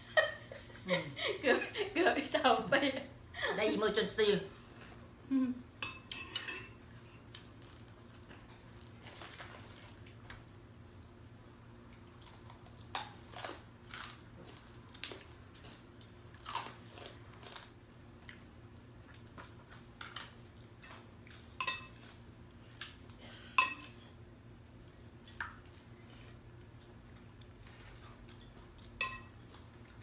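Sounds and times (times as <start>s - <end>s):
spoons clinking on ceramic bowls: 5.8s - 6.8s, 21.6s - 22.0s, 23.6s - 24.0s, 29.0s - 29.4s
people chewing and crunching: 6.8s - 30.0s.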